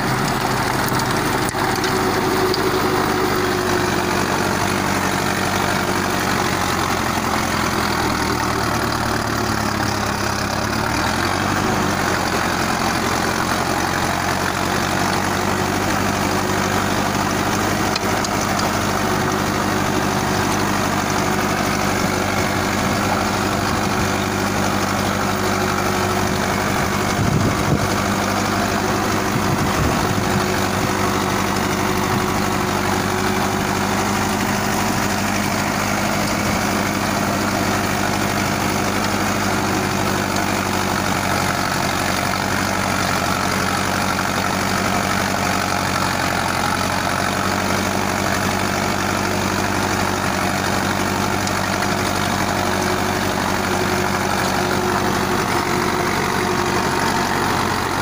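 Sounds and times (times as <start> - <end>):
rotavator blades churning soil: 0.0 - 58.0
tractor diesel engine running: 0.0 - 58.0.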